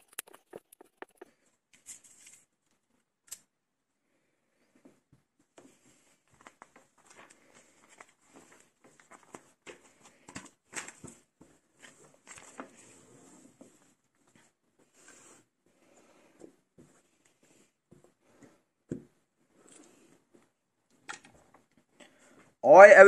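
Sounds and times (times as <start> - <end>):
plastic pieces clicking and rattling: 0.0 - 1.2.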